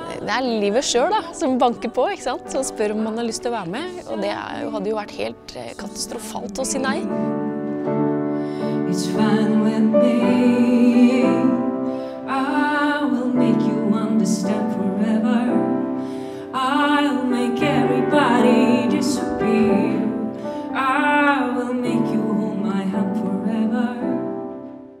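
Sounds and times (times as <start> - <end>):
keyboard accompaniment: 0.0 - 25.0
woman singing slow song: 16.4 - 24.2.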